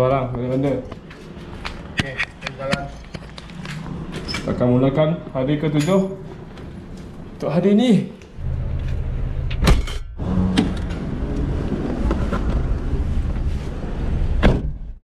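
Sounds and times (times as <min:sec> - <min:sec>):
car door shutting: 0:09.5 - 0:11.1, 0:14.3 - 0:14.8.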